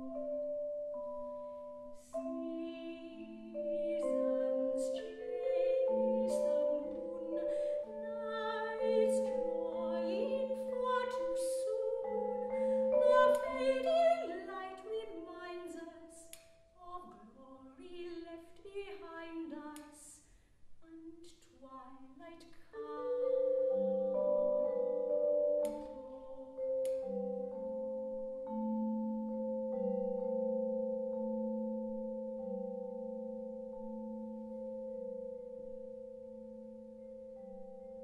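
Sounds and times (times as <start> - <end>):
xylophone and vibraphone: 0.0 - 15.8, 23.0 - 38.0
woman singing long notes: 2.0 - 19.9, 25.6 - 27.1.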